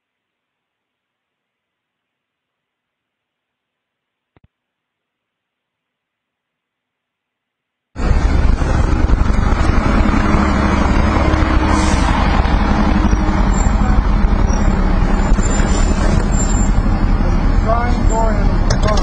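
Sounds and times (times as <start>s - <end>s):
street noise: 8.0s - 19.0s
vehicle engine running: 8.0s - 19.0s.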